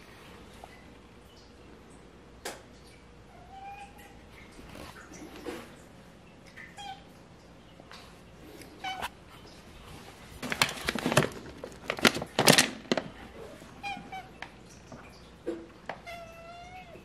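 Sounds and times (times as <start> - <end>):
foil bag crinkling: 9.9 - 14.6
cat meowing: 16.0 - 17.0.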